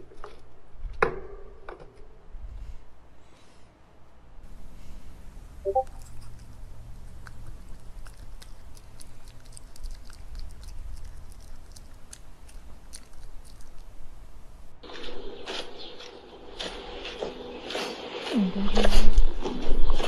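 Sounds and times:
dog chewing noodles: 5.8 - 20.0.

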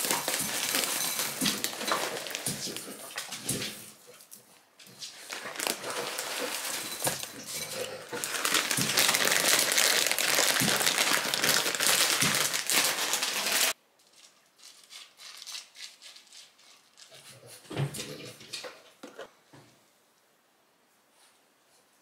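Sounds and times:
plastic bag crinkling: 0.0 - 3.4, 5.1 - 16.3.

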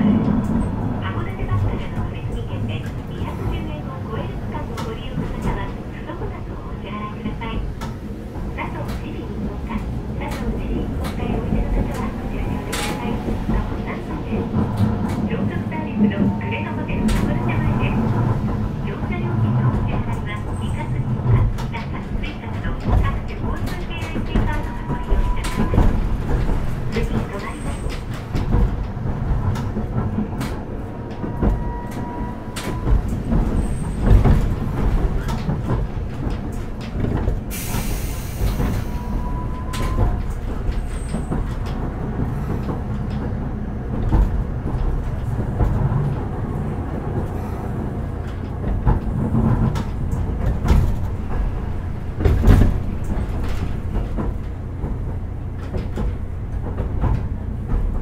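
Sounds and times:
tram wheels rumbling on rail: 0.0 - 58.0
hiss of air: 37.5 - 38.9.

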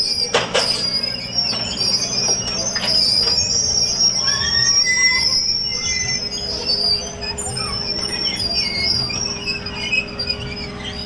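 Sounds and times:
excavator engine running: 0.0 - 11.0
high-pitched metal squeal: 0.0 - 11.0
knocks from tracks and bucket: 0.3 - 1.7.

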